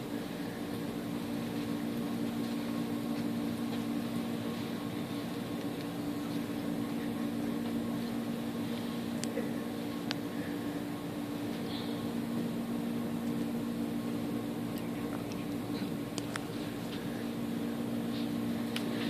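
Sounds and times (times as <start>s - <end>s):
low droning mechanical hum: 0.0s - 19.0s.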